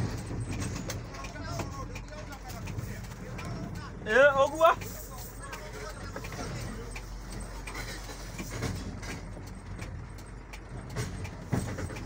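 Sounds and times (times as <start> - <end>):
cab rattling and knocking: 0.0 - 12.0
truck engine hum: 0.0 - 12.0.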